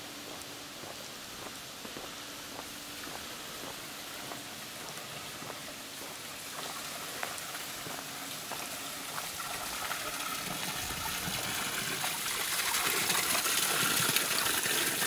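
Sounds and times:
footsteps on paving: 0:00.0 - 0:09.7
water splashing onto a grate: 0:07.0 - 0:15.0.

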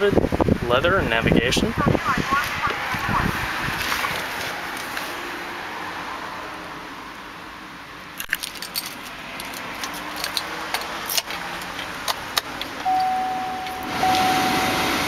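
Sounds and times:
keys jangling and clicking: 0:08.2 - 0:12.8
car warning chime beeping: 0:12.8 - 0:15.0.

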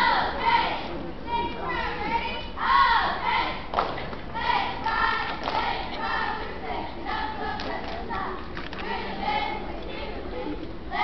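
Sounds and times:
children shouting a chant: 0:01.4 - 0:03.7
hands clapping: 0:03.7 - 0:04.2, 0:05.3 - 0:05.7, 0:07.6 - 0:08.8.

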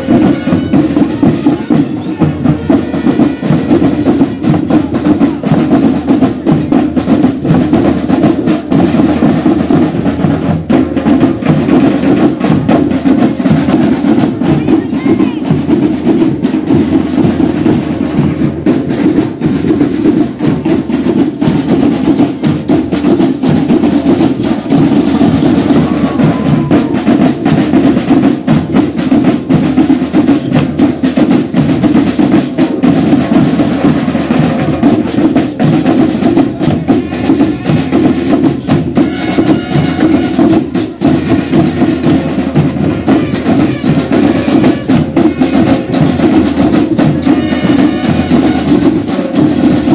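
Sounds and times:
marching band drums: 0:00.0 - 0:49.9.

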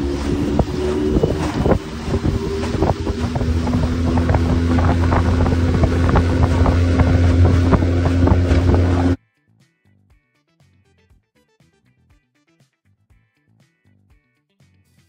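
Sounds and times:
hull knocking on waves: 0:00.0 - 0:09.2
outboard motor running: 0:00.0 - 0:09.2
wind buffeting microphone: 0:00.0 - 0:09.2.

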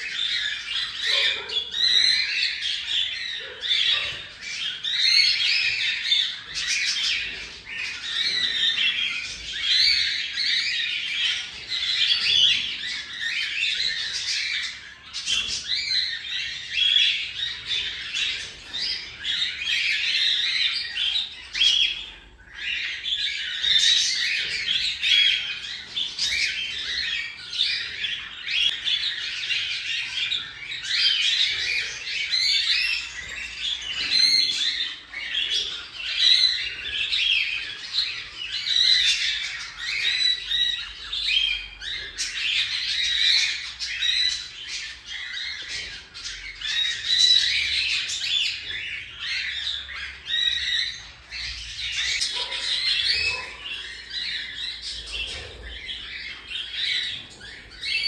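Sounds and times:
bird chick scratchy calls: 0:50.1 - 0:58.0.

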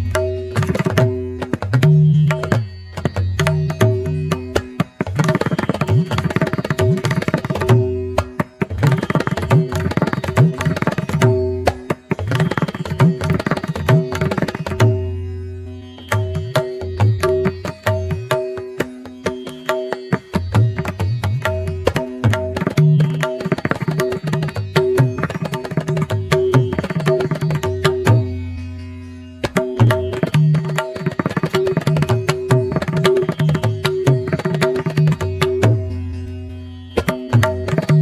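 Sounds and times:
hand drum playing: 0:05.9 - 0:15.1, 0:29.5 - 0:35.9.

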